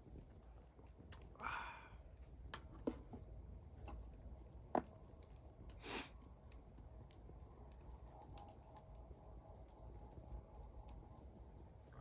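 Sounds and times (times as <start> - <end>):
campfire crackling: 0.0 - 12.0
low steady rumble: 0.0 - 12.0.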